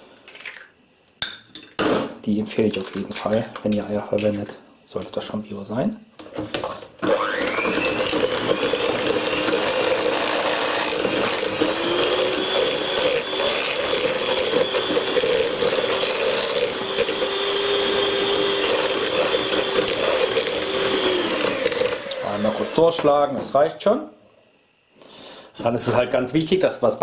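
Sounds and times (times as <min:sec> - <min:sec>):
electric hand mixer whining: 0:06.5 - 0:23.3.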